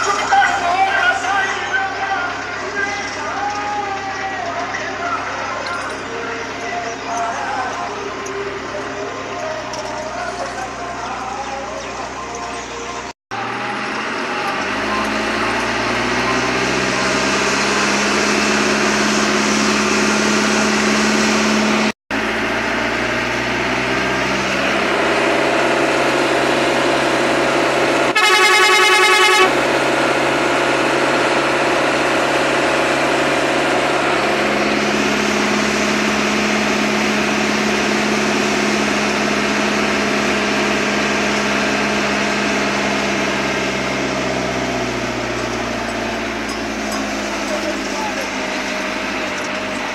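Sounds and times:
truck diesel engine running: 0.0 - 49.9
truck horn blast: 28.0 - 30.6.

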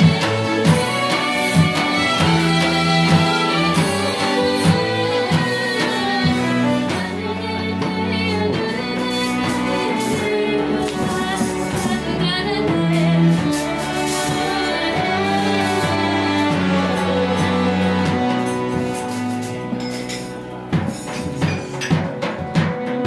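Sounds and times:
flute melody: 0.0 - 7.5
fiddles bowing: 0.0 - 23.0.

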